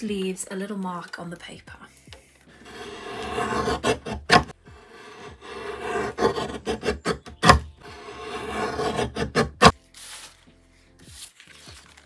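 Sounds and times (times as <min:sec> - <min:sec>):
guillotine blade shearing card: 0:02.6 - 0:10.3.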